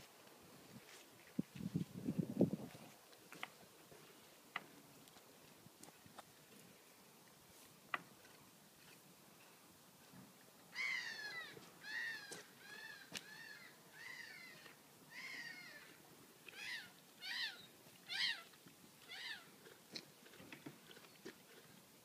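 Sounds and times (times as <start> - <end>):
animal calling: 10.7 - 19.7.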